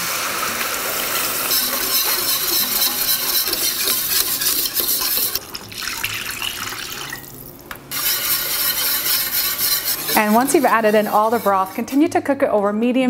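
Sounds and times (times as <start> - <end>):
wire whisk stirring gravy: 0.9 - 5.7, 7.9 - 12.1.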